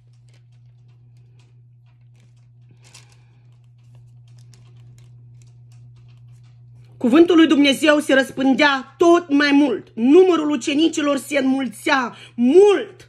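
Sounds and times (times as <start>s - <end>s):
thin pages rustling: 0.0s - 7.0s
low hum: 0.0s - 12.4s.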